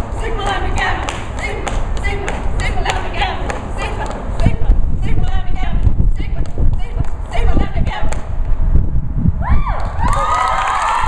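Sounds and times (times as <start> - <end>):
spectators whooping: 9.4 - 11.0.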